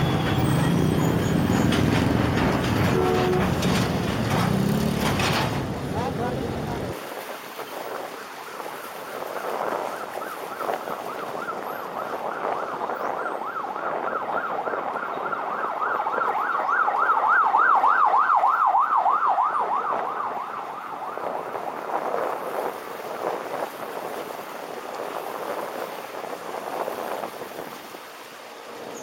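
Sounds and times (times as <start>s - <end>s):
road noise: 0.0s - 29.0s
wind: 0.0s - 29.0s
emergency siren yelping: 9.9s - 21.6s.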